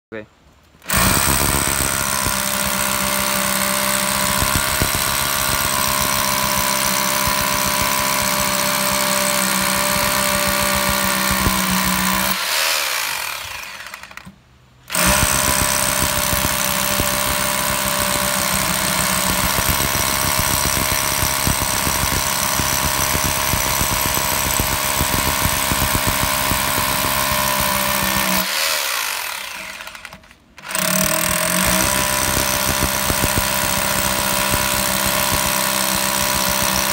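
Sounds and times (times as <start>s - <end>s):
impact drill hammering into concrete: 0.8s - 36.9s.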